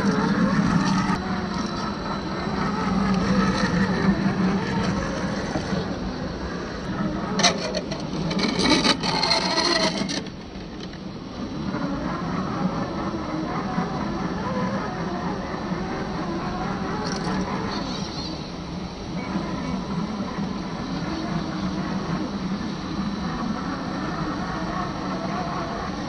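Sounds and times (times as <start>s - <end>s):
electric motor and gears running: 0.0s - 26.0s
rapid clicking and scraping: 7.3s - 11.0s.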